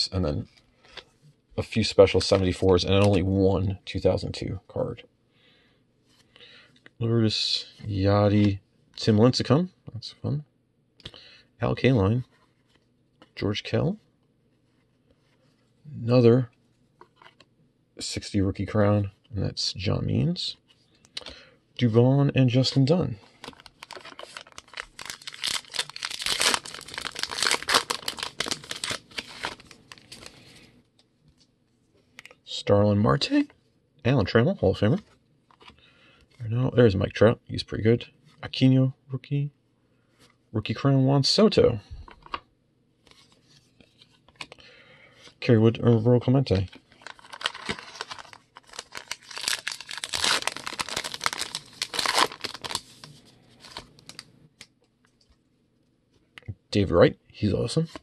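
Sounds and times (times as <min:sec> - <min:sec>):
cards being handled: 0:02.0 - 0:03.3, 0:22.5 - 0:32.4, 0:45.2 - 0:55.4
wrapper tearing and crinkling: 0:23.4 - 0:30.4, 0:46.9 - 0:54.3.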